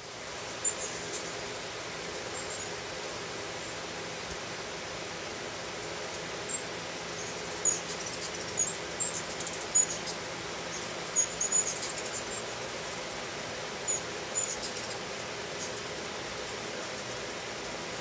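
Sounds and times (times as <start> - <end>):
hummingbirds chattering: 0.0 - 2.8, 6.0 - 18.0
steady background hiss: 0.0 - 18.0.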